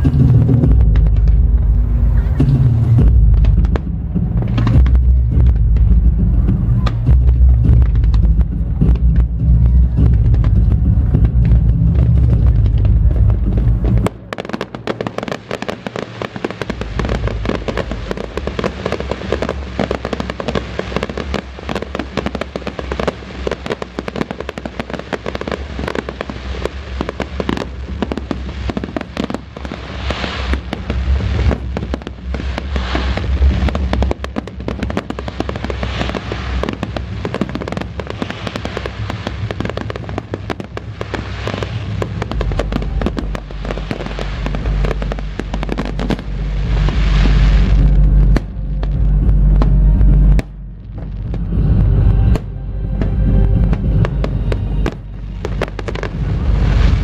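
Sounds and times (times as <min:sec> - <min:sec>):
fireworks booming: 0:00.0 - 0:57.0
fireworks crackling: 0:00.0 - 0:57.0.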